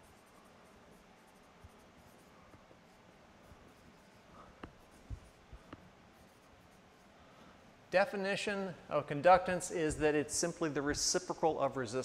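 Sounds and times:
marker scratching on whiteboard: 0:00.0 - 0:07.2.

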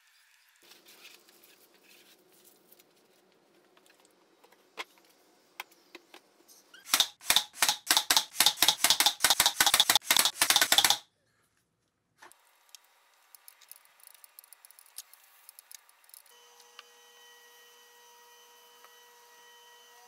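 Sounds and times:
brad nailer firing: 0:06.9 - 0:11.0.

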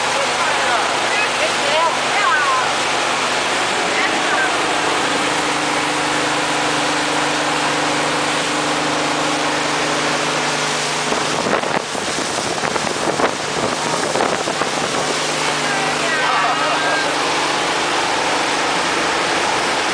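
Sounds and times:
speedboat engine drone: 0:00.0 - 0:19.9
wake spray rushing: 0:00.0 - 0:19.9
water splashing: 0:00.0 - 0:19.9
wind on microphone: 0:04.6 - 0:16.2.

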